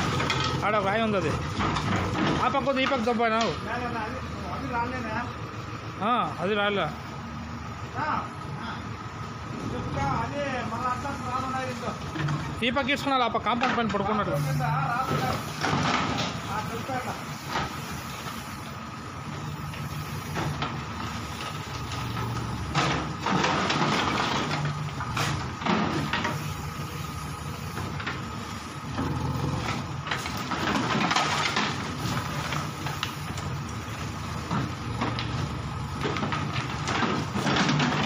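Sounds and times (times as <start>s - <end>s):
bricks and masonry crashing: 0.0s - 3.6s, 15.1s - 17.8s, 20.4s - 26.5s, 29.0s - 33.7s, 34.4s - 38.0s
diesel excavator engine running: 0.0s - 38.0s.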